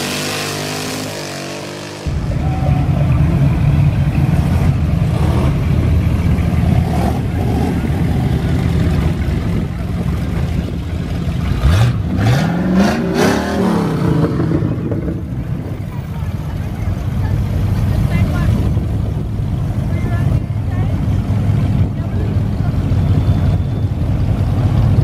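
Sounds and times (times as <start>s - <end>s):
engine revving: 0.0s - 9.7s, 11.3s - 15.3s
car engines rumbling past: 0.0s - 25.0s.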